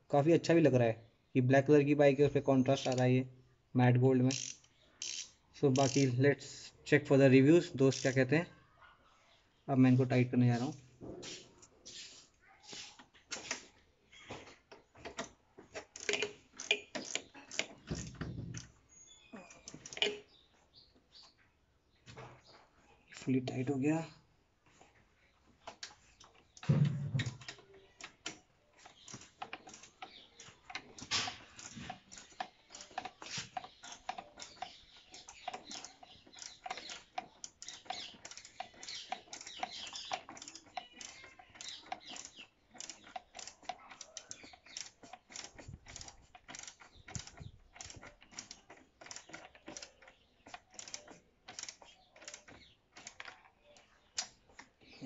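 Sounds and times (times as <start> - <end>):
ratchet wrench clicking: 2.8 - 3.1, 4.3 - 6.1, 7.9 - 8.2, 15.9 - 18.7, 19.6 - 20.2, 27.2 - 53.3.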